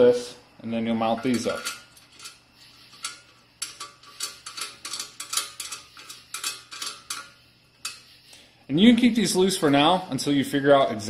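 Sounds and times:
metal nut ticking on bracket: 0:03.0 - 0:08.0.

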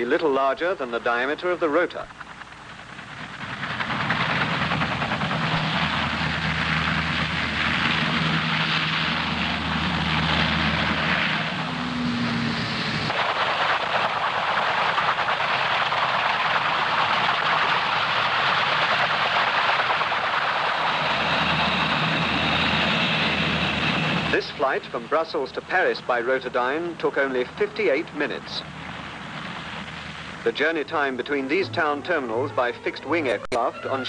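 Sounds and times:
loud jet noise from rotor: 0:01.5 - 0:34.0
low drone: 0:02.1 - 0:14.4, 0:26.6 - 0:34.0.

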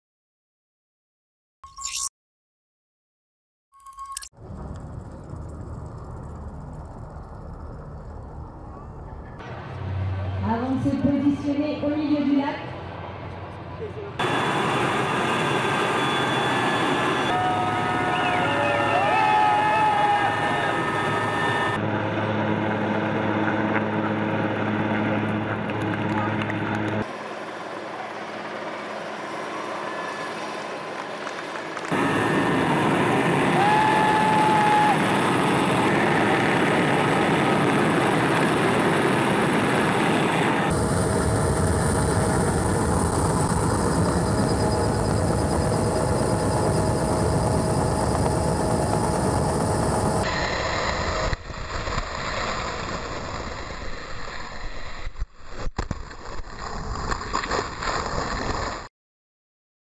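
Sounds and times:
helicopter engine and rotor: 0:04.4 - 0:09.4, 0:12.8 - 0:51.2.

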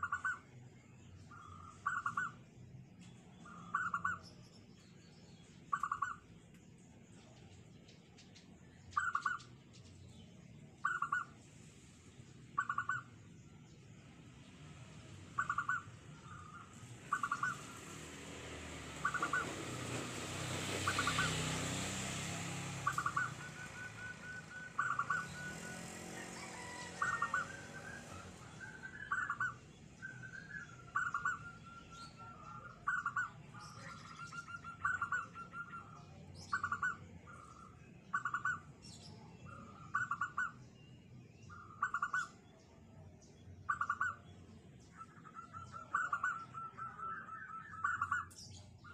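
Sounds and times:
dove cooing: 0:15.4 - 0:18.0, 0:19.0 - 0:20.0, 0:20.6 - 0:22.0, 0:22.8 - 0:33.4, 0:34.2 - 0:35.9, 0:39.6 - 0:40.6, 0:45.1 - 0:48.3.

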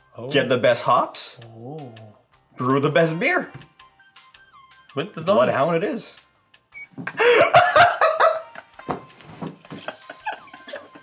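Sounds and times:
men laughing: 0:07.0 - 0:11.0.

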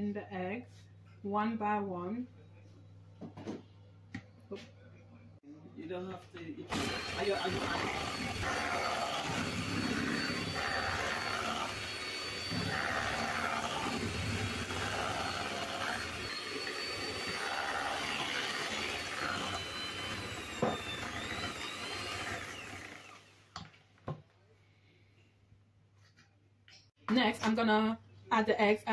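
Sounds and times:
electric hand mixer whining: 0:06.7 - 0:23.4.

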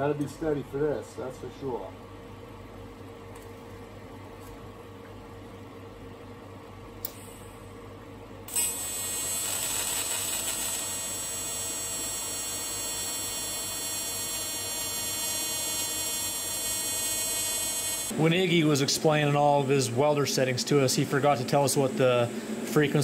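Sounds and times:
small click: 0:07.0 - 0:07.2
welding arc crackle: 0:08.5 - 0:18.1
welding arc buzzing: 0:08.5 - 0:18.4.

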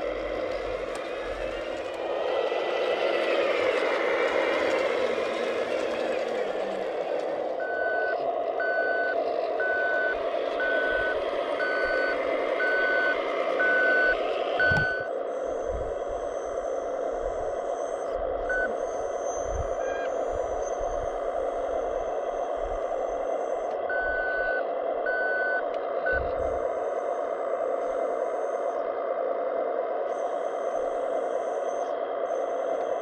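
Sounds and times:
high whine: 0:00.0 - 0:25.0
short electronic beeps: 0:07.6 - 0:15.1.

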